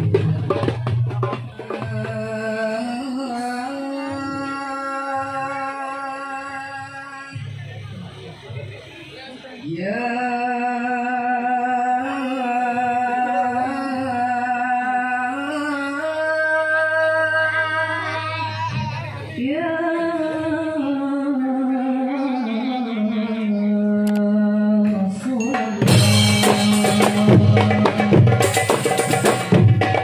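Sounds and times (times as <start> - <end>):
frame drums fast beat: 0.0 - 2.9, 25.4 - 30.0
person singing slow melody: 1.8 - 7.4, 9.7 - 28.4.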